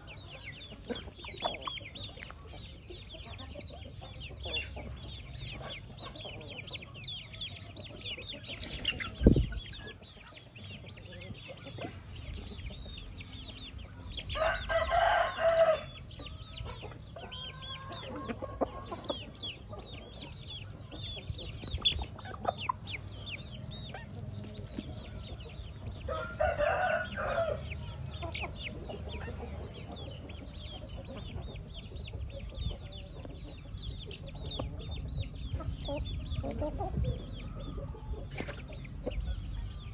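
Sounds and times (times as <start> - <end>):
high chirping of small birds: 0.0 - 39.9
rooster crowing: 14.4 - 15.9, 26.1 - 27.6.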